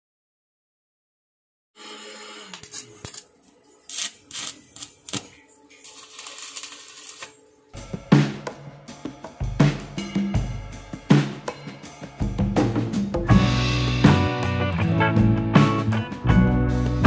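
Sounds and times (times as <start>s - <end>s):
welding arc crackling: 2.2s - 3.3s, 3.9s - 7.4s
drum-led music: 4.0s - 17.0s.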